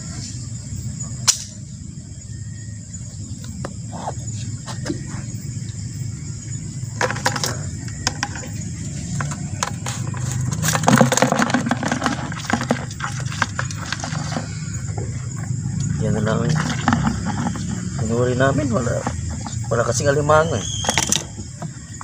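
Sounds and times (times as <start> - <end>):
insect chorus: 0.0 - 22.0.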